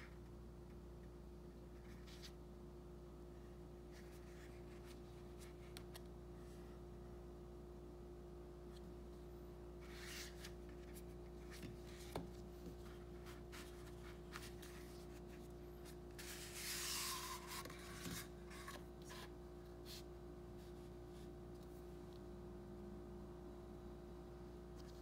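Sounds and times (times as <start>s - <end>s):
card sliding on card: 15.8s - 19.3s.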